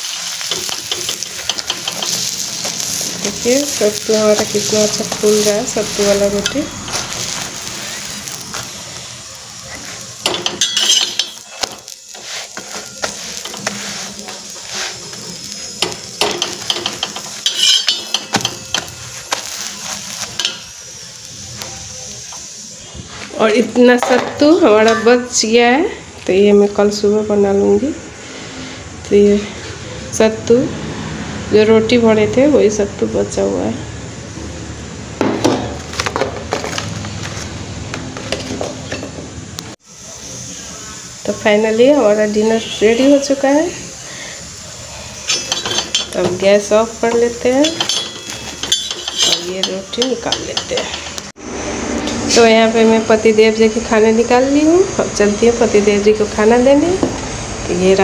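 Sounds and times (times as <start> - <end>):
spatula scraping flat pan: 0.0 - 8.8, 9.7 - 20.7, 45.0 - 51.3
light sizzle from pan: 0.0 - 29.6, 35.4 - 51.4.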